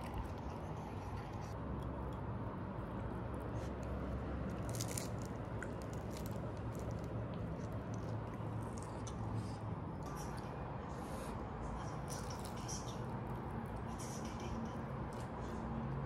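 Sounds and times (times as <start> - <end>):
pastry crust crackling: 3.0 - 9.3, 11.9 - 13.9.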